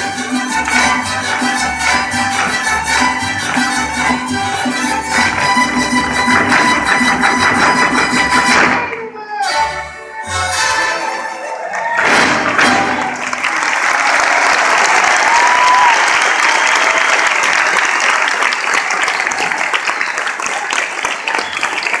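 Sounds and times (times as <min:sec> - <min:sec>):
music: 0:00.0 - 0:11.5
crowd cheering: 0:11.0 - 0:22.0
audience applauding: 0:11.4 - 0:22.0
whistle: 0:21.3 - 0:22.0.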